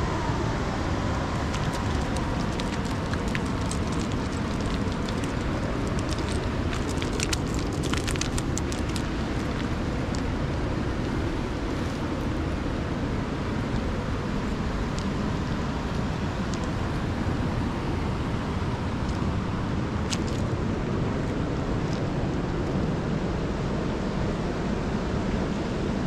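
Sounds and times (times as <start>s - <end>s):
river water rushing: 0.0s - 19.7s
small crackling splashes: 1.4s - 9.6s.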